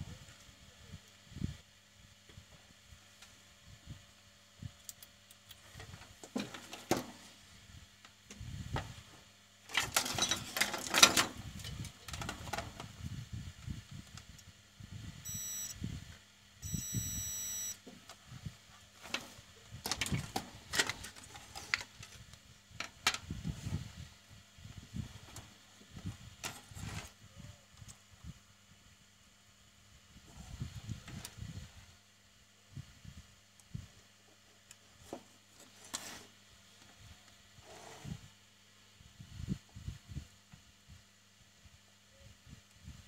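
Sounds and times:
short electronic beeps: 15.2 - 15.8, 16.6 - 17.8.

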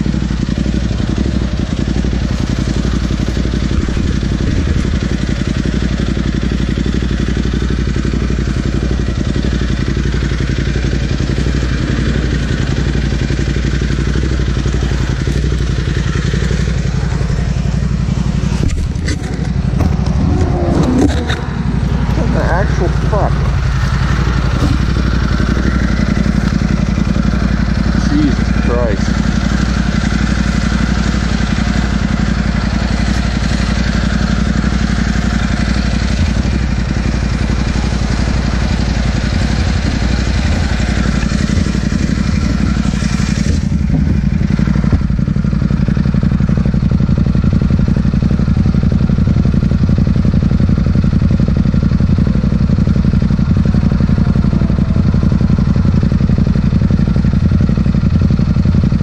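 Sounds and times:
motorcycle engine idling: 0.0 - 59.0
highway traffic rushing past: 14.2 - 44.9, 52.0 - 58.8.

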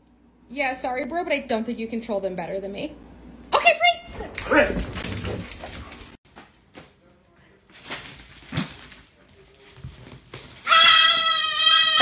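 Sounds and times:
dogs scrambling off couch: 4.1 - 6.2
goat kid bleating: 10.6 - 12.0.

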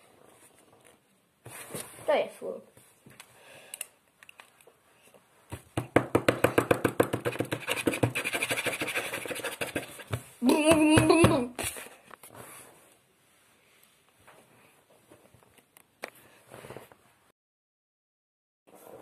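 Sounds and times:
boy making vocal noises: 10.4 - 11.6.

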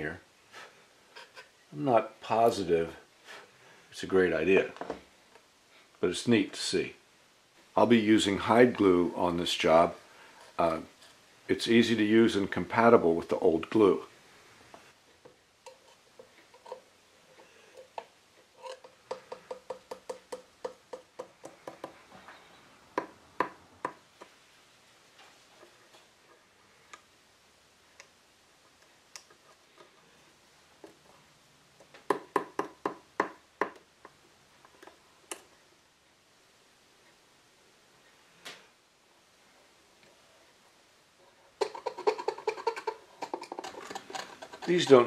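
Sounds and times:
metal blade scraping glue: 41.7 - 45.0.

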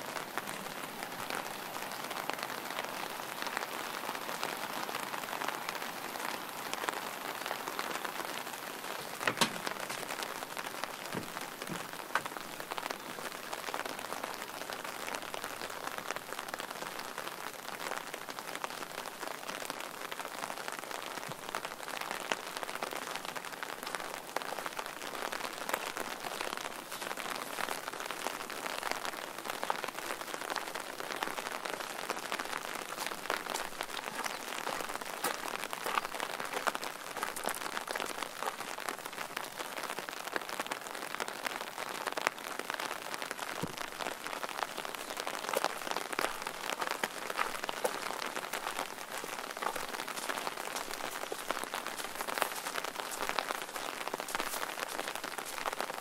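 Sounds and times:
steady rain falling: 0.0 - 56.0
loud raindrop tap: 9.0 - 12.6, 43.6 - 44.0.

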